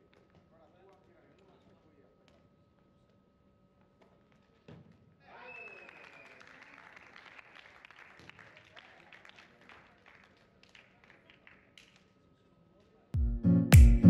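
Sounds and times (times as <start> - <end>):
faint scattered clapping: 5.5 - 12.9.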